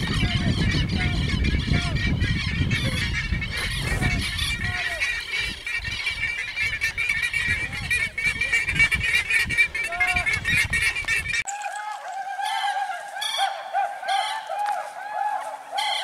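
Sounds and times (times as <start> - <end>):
wind rumbling on microphone: 0.0 - 11.5
birds calling in chorus: 0.0 - 16.0
low repeated bird call: 0.0 - 16.0.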